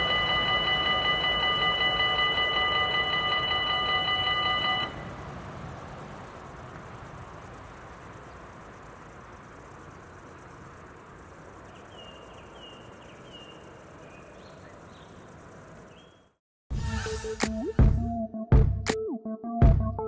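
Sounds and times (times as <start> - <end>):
level crossing bells ringing: 0.0 - 5.2
crickets chirping: 0.0 - 16.4.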